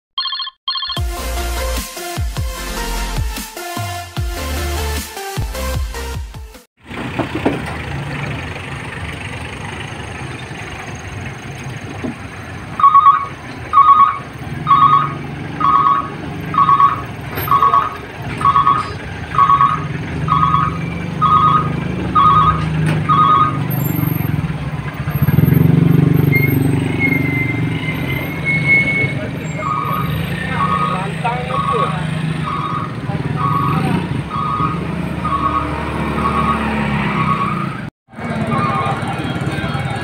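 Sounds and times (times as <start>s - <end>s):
pickup truck engine running: 6.8s - 25.9s
reversing alarm beeping: 12.8s - 24.3s, 25.2s - 39.4s.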